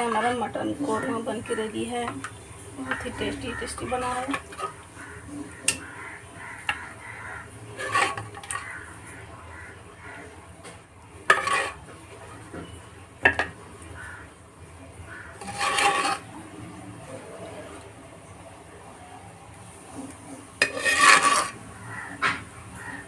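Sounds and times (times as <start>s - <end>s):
spoon scraping metal plate: 7.8s - 8.8s, 11.3s - 11.8s, 15.4s - 16.4s, 20.6s - 21.6s.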